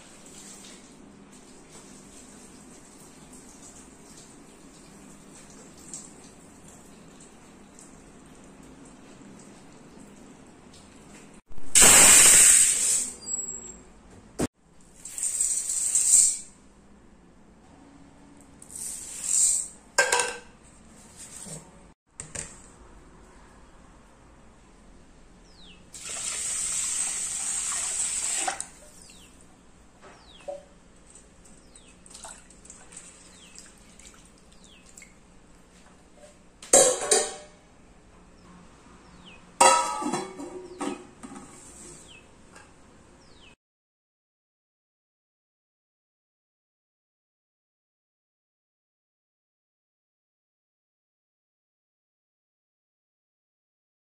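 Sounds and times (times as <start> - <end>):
water running into pot: 26.0 - 28.9
water splashing: 32.0 - 35.2
metal pot clanking: 36.8 - 37.6, 39.6 - 41.4.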